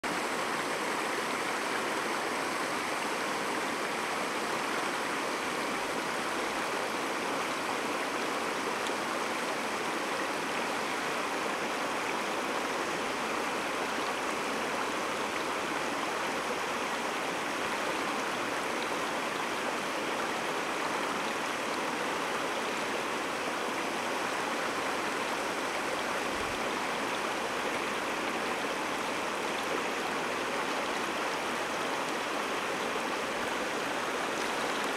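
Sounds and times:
creek water running over gravel: 16.5 - 34.9.

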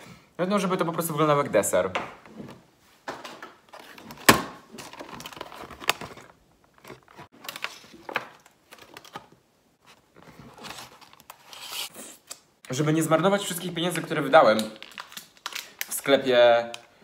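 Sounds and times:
plastic container crinkling and clicking: 13.9 - 16.9.

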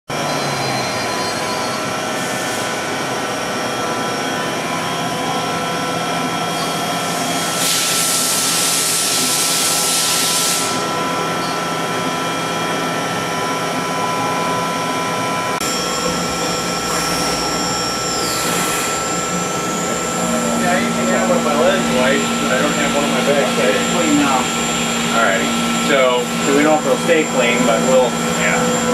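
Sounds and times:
lathe machine hum and whine: 0.1 - 28.9
loud hiss: 7.4 - 10.8.

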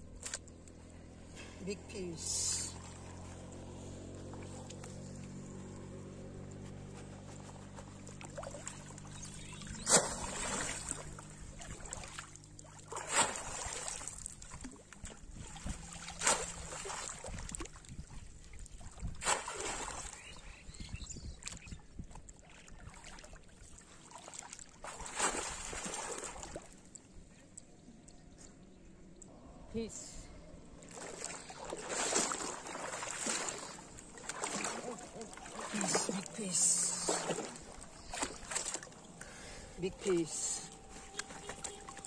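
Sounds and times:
low steady hum: 0.0 - 42.0
water sloshing around legs: 2.7 - 20.4, 21.4 - 27.1, 30.7 - 42.0
fish trap splashing into water: 9.8 - 14.8, 16.0 - 17.7, 19.1 - 20.2, 31.0 - 36.2.

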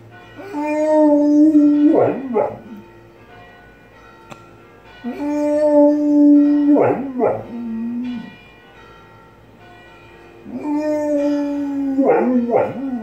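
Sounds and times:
faint church bells ringing: 0.0 - 13.0
dog howling: 0.4 - 2.8, 5.0 - 8.4, 10.4 - 13.0.

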